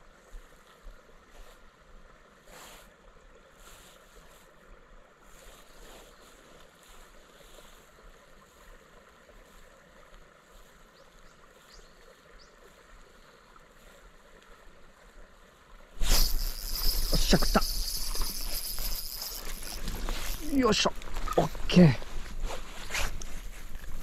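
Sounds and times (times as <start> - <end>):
fishing reel winding: 16.0 - 21.0
outdoor hiss: 16.0 - 23.9.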